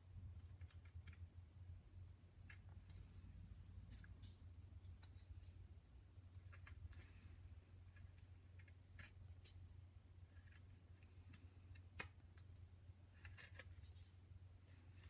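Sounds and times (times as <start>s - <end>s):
low steady hum: 0.0s - 15.0s
knife carving wood: 0.3s - 1.3s, 6.3s - 15.0s.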